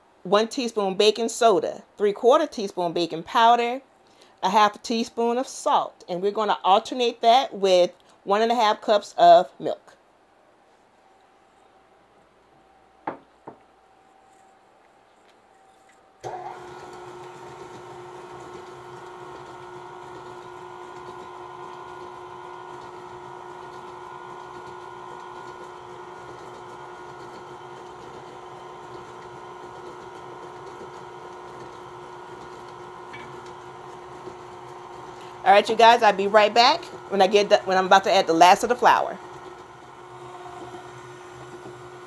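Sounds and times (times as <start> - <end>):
stand mixer beating batter: 16.2 - 42.0.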